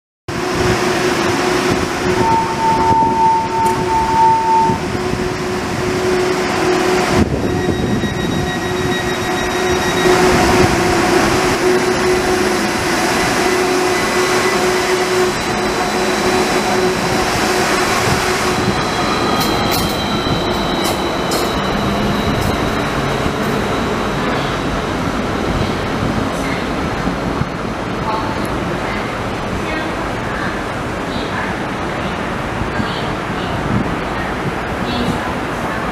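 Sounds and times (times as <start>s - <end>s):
tram electric hum: 0.3s - 35.9s
steady beep: 2.1s - 4.8s, 5.9s - 24.7s.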